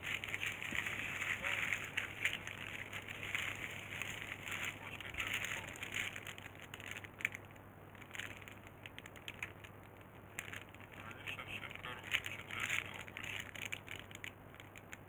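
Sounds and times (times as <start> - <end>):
crinkling and rustling: 0.0 - 15.0
faint steady hum: 0.0 - 15.0
small clicks: 12.0 - 15.0.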